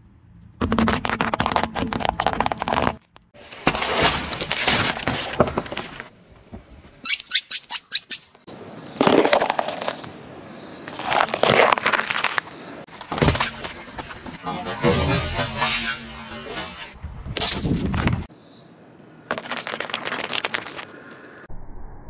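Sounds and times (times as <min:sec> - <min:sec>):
car tyre crushing objects: 0:00.6 - 0:06.7, 0:09.0 - 0:10.1, 0:10.9 - 0:16.0.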